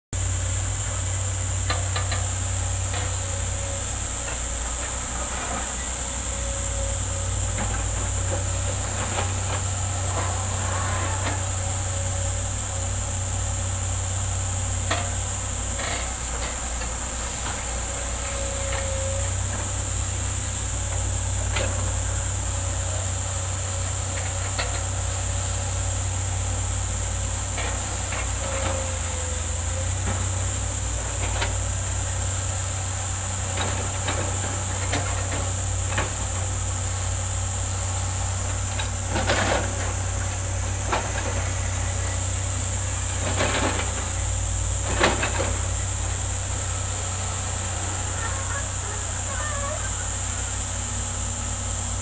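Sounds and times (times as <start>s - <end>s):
distant diesel engines running: 0.2s - 52.0s
excavator buckets clanking: 0.7s - 52.0s
high-pitched hiss: 39.8s - 52.0s.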